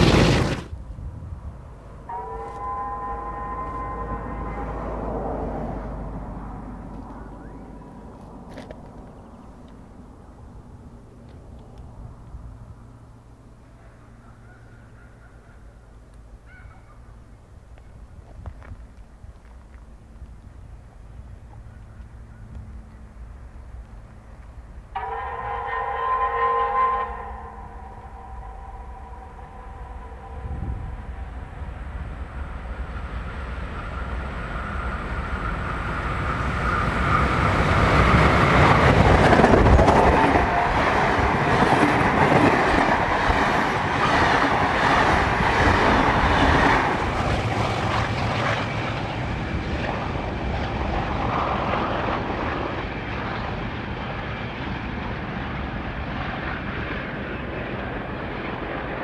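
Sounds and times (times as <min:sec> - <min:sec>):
steam locomotive passing: 0:00.0 - 0:59.0
wheels clicking over rail joints: 0:06.8 - 0:10.0.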